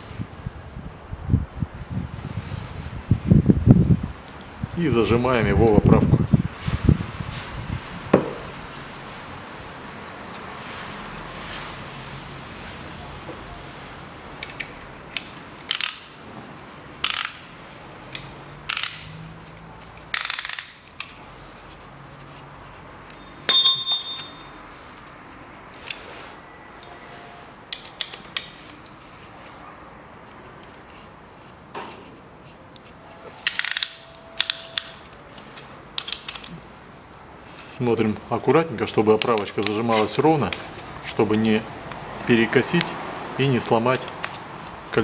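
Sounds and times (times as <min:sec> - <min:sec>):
metal ringing clink: 0:23.2 - 0:24.6.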